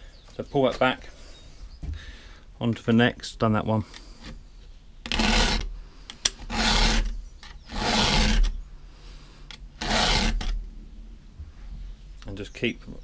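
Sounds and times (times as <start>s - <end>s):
file rasping on chain teeth: 5.1s - 5.7s, 6.4s - 8.6s, 9.8s - 10.6s.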